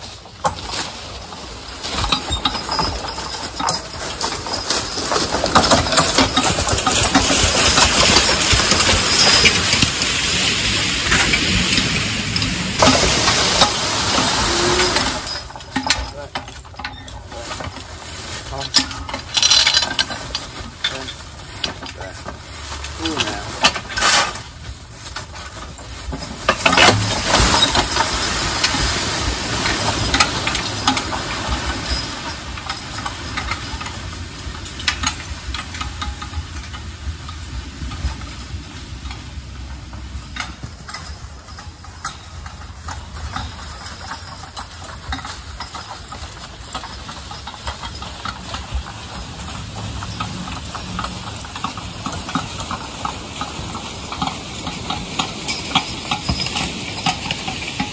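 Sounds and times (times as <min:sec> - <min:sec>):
log dragged through leaves: 0:00.0 - 0:15.7, 0:17.1 - 0:35.5
hooves through dry leaves: 0:00.0 - 0:16.4, 0:17.0 - 0:34.6
chains rattling and knocking: 0:00.0 - 0:57.9.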